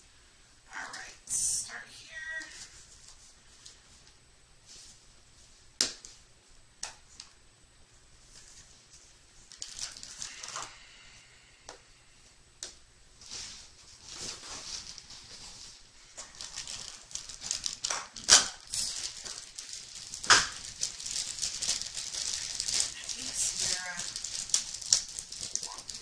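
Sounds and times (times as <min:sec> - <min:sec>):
foil and cardboard crinkling: 0:08.3 - 0:11.0, 0:13.2 - 0:26.0.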